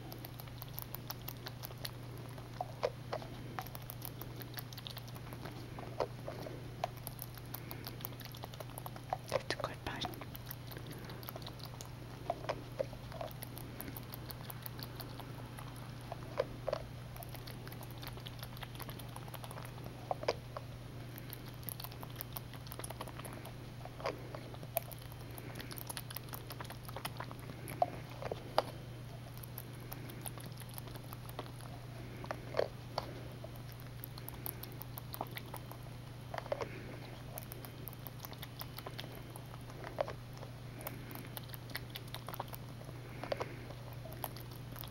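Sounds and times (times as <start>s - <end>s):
wet mouth clicks and smacks: 0.0s - 20.4s, 21.3s - 31.8s, 32.4s - 35.8s
steady low hum: 0.0s - 44.9s.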